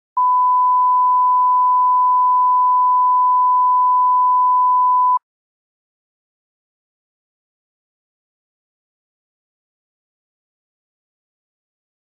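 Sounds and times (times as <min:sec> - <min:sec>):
steady pure tone beep: 0:00.2 - 0:05.2.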